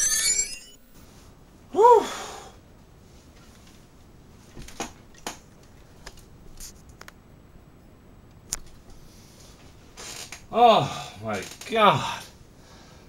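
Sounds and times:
rising and falling tone: 0.0s - 1.0s.

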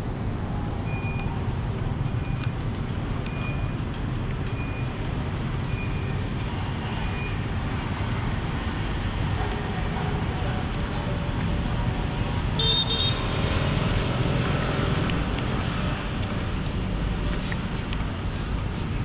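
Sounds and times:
city road traffic rumble: 0.0s - 19.0s
high-pitched horn toot: 12.6s - 13.2s.

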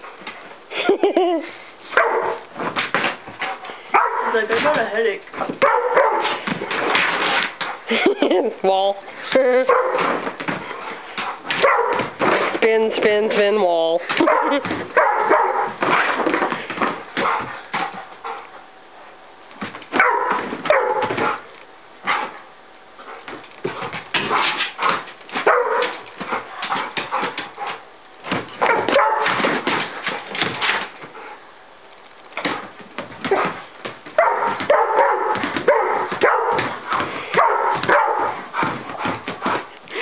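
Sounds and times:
dog barking yipping and whining: 1.9s - 2.5s, 3.9s - 4.5s, 5.6s - 6.4s, 9.7s - 10.1s, 11.4s - 12.2s, 14.2s - 16.2s, 19.9s - 21.5s, 24.3s - 27.7s, 28.6s - 29.6s, 34.2s - 38.7s.

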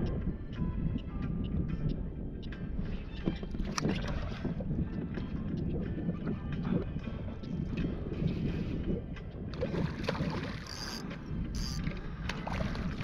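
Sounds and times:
wind buffeting microphone: 0.0s - 13.0s
water sloshing around kayak: 9.6s - 13.0s
fishing reel clicking: 10.6s - 11.0s, 11.6s - 11.9s.

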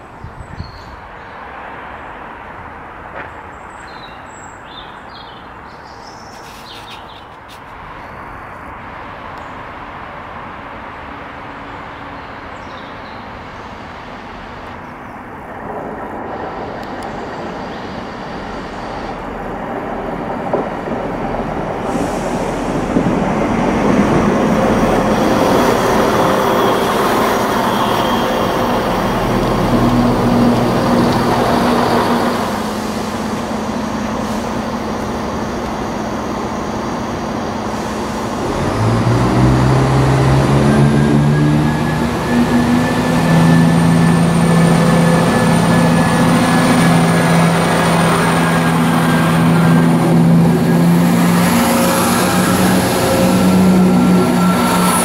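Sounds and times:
diesel train engine approaching: 0.8s - 55.0s
bird chirps: 3.7s - 7.4s.

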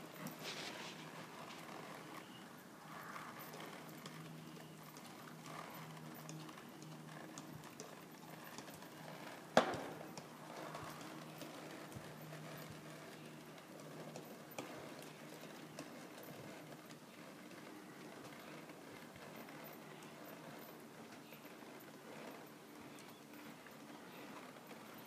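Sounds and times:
hoofbeats on soft dirt: 0.0s - 25.0s.

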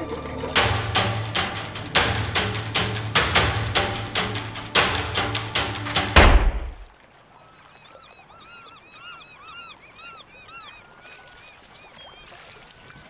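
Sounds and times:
flock of birds calling: 7.3s - 13.0s.

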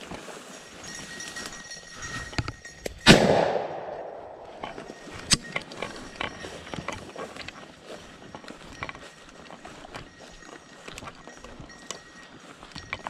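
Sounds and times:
shotgun blast echoing: 3.1s - 4.4s.

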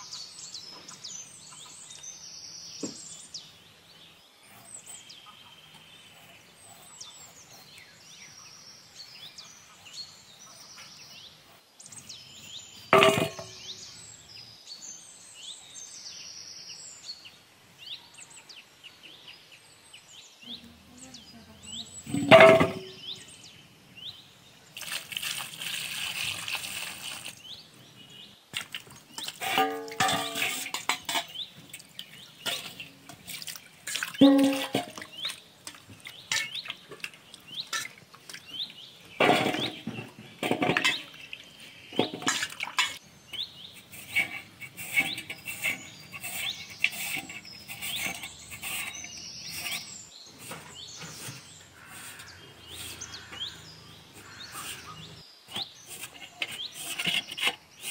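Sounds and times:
potatoes knocking on steel bowls: 13.0s - 13.6s, 22.1s - 23.0s, 29.2s - 31.4s, 34.2s - 37.1s, 39.2s - 41.2s, 41.9s - 43.0s
water sloshing in a steel bowl: 28.6s - 49.8s.

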